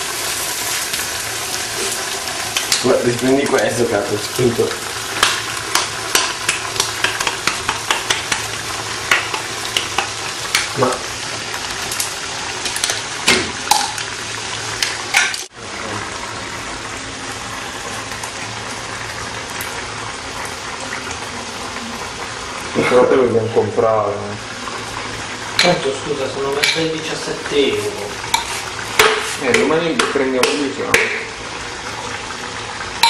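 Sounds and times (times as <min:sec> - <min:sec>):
beans sizzling in a pan: 0:00.0 - 0:33.0.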